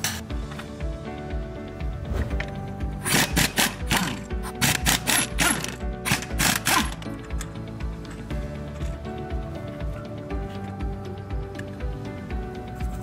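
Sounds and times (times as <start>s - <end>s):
background music with steady beat: 0.0s - 13.0s
power wrench ratcheting: 3.0s - 7.6s.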